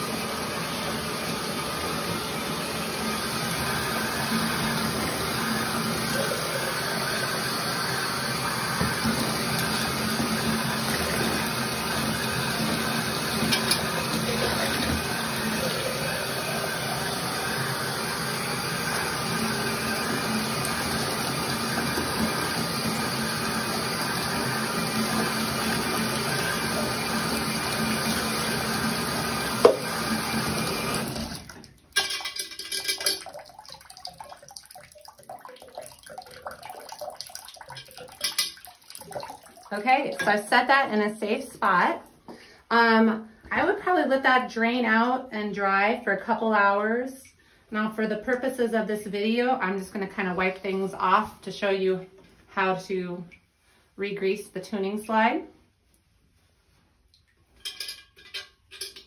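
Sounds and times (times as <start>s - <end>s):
faucet water running: 0.0s - 43.0s
water dripping: 31.4s - 40.5s, 57.1s - 59.0s.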